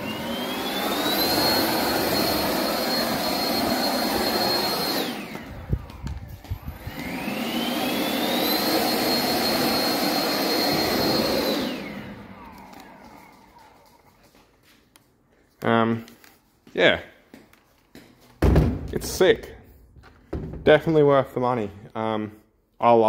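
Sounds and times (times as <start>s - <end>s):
leaf blower whining: 0.0s - 14.4s.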